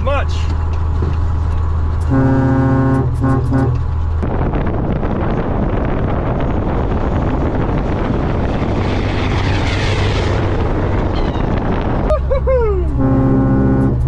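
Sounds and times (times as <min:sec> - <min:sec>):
truck driving past: 0:00.4 - 0:14.0
truck air horn: 0:02.0 - 0:03.9, 0:12.8 - 0:14.0.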